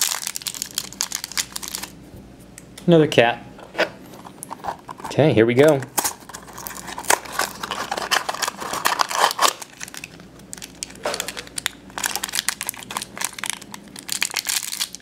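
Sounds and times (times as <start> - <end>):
foil bag crinkling and tearing: 0.0 - 2.0, 5.9 - 15.0.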